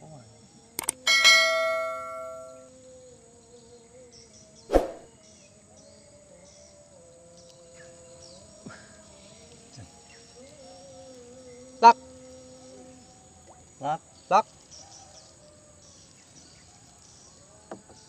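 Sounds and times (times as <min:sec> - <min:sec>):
bell-like chime: 0:01.1 - 0:02.6
faint sustained tones: 0:01.1 - 0:03.1.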